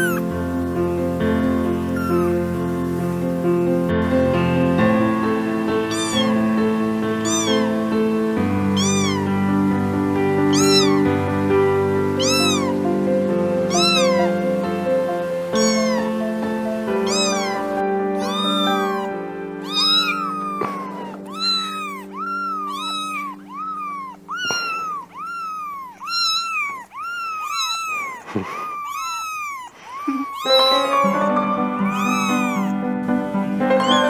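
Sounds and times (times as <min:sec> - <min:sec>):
kitten meowing: 0:00.0 - 0:00.3, 0:01.8 - 0:02.5, 0:05.8 - 0:06.5, 0:07.1 - 0:09.7, 0:10.4 - 0:11.2, 0:12.0 - 0:12.8, 0:13.6 - 0:14.6, 0:15.4 - 0:16.2, 0:16.8 - 0:32.8, 0:33.8 - 0:34.0
background keyboard music: 0:00.0 - 0:26.9, 0:30.4 - 0:34.0.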